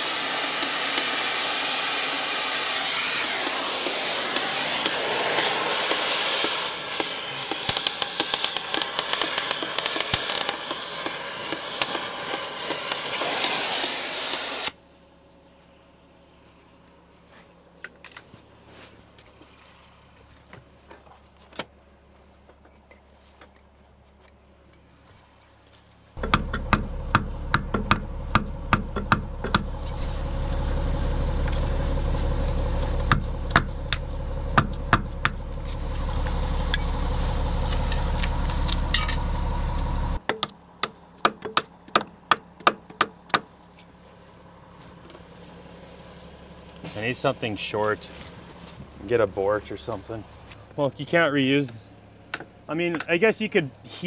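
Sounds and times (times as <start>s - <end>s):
steady rushing noise: 0.0s - 8.1s
hammer tapping steel punch: 40.2s - 43.5s.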